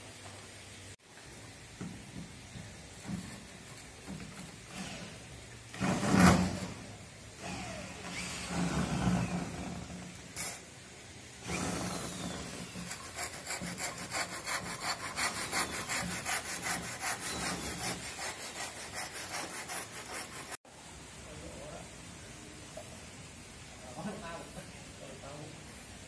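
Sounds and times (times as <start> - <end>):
wood scraping strokes: 11.4 - 20.6.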